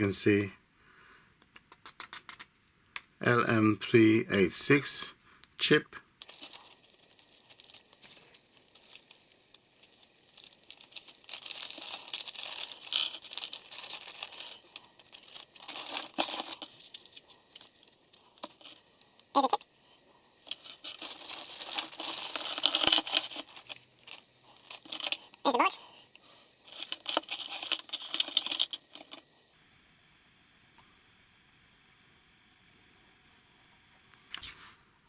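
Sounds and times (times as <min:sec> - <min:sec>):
plastic bags crinkling: 0:06.2 - 0:19.6, 0:20.4 - 0:25.8, 0:26.6 - 0:29.3.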